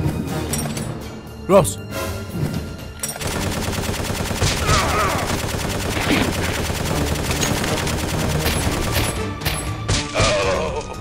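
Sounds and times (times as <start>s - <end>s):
rapid machine-gun fire: 3.2s - 9.0s.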